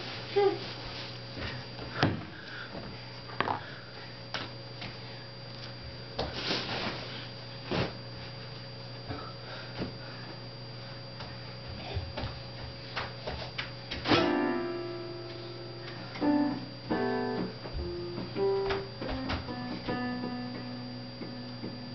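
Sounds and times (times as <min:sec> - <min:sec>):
steady low hum: 0:00.0 - 0:21.9
bare feet stepping on mats: 0:11.2 - 0:14.1, 0:17.4 - 0:20.0.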